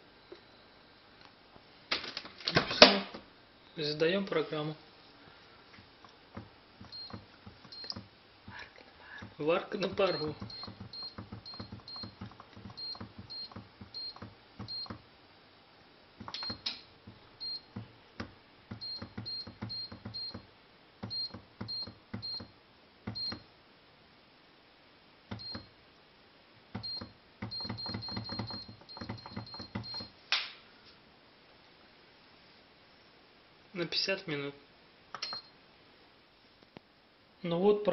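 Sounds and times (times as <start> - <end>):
short high beeps: 10.0 - 12.2.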